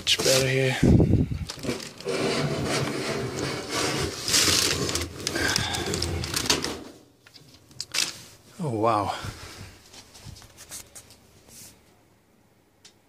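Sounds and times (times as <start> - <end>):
packing paper rustling: 0.0 - 0.8, 1.4 - 8.4
case scraping against cardboard box: 1.4 - 6.9.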